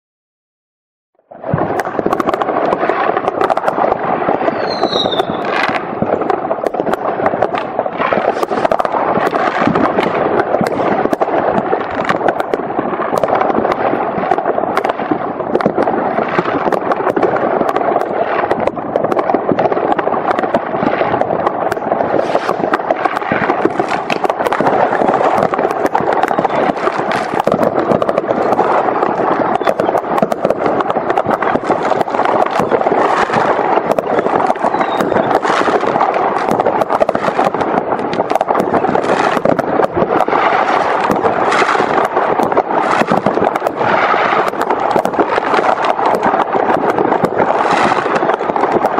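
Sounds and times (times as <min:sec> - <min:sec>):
fireworks crackling and banging: 0:01.2 - 0:48.9
firework whistle: 0:01.4 - 0:11.6, 0:20.8 - 0:48.9.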